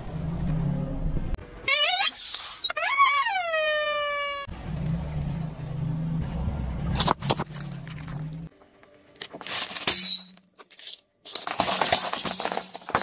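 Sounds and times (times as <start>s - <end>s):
coins clinking: 9.4s - 13.0s.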